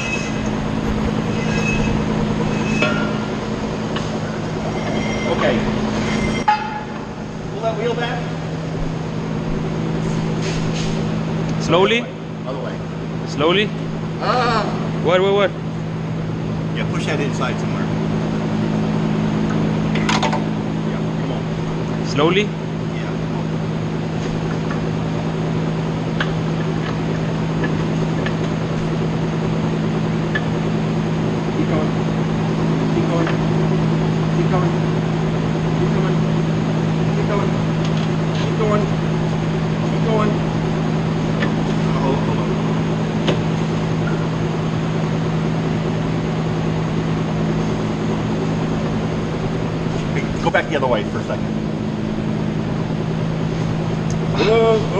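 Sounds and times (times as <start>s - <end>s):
machinery drone: 0.0s - 54.9s.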